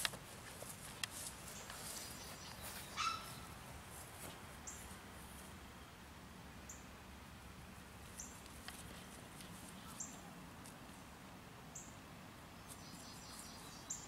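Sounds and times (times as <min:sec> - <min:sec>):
faint outdoor ambience: 0:00.0 - 0:14.0
short high bird chirp: 0:02.5 - 0:03.4.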